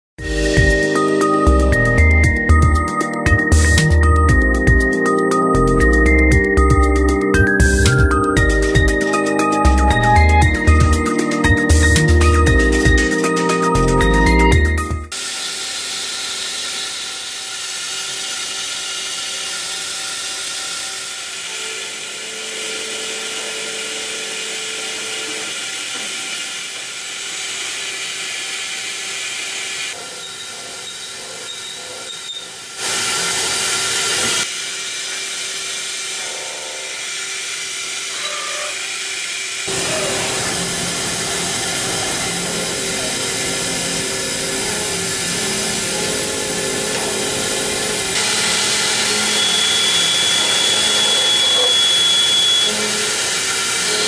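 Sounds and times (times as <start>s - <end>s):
steady machine tones: 0.3s - 15.2s, 39.7s - 54.0s
lathe cutting metal hiss: 15.1s - 38.1s, 38.8s - 54.0s.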